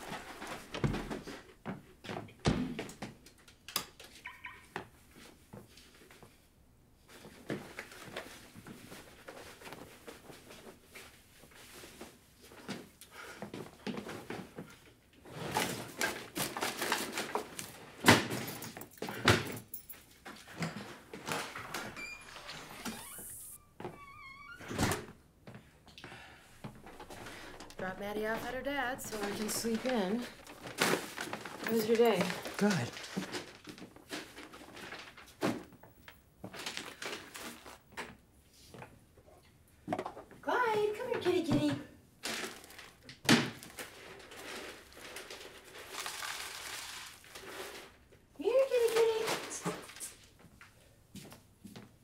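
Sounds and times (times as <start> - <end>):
objects rustling and clattering: 0.0 - 24.0, 24.7 - 40.4, 41.0 - 52.0
rustling: 26.6 - 35.6, 43.6 - 50.6.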